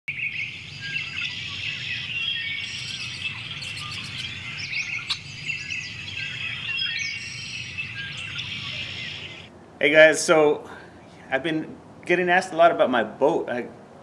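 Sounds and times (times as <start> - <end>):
small birds chirping: 0.1 - 9.5.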